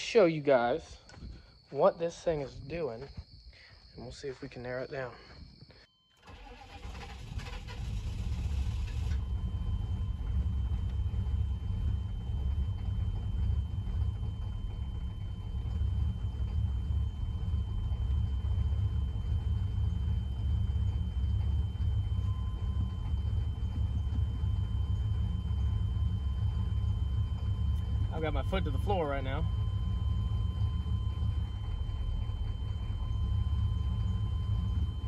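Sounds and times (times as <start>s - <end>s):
starter motor cranking: 6.2s - 13.1s
diesel engine idling: 6.2s - 35.0s.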